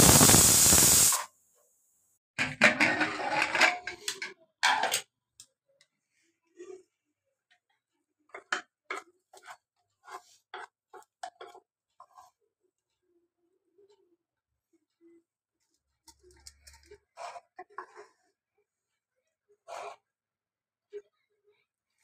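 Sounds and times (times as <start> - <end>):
steam hissing: 0.0 - 1.3
pot lid clattering: 2.4 - 3.9.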